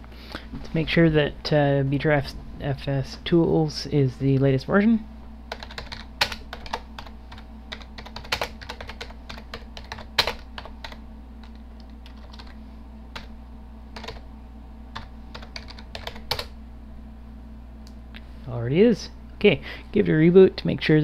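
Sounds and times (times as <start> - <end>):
steady low hum: 0.0 - 21.0
computer keyboard typing: 5.5 - 13.3, 14.0 - 14.2, 15.0 - 16.5.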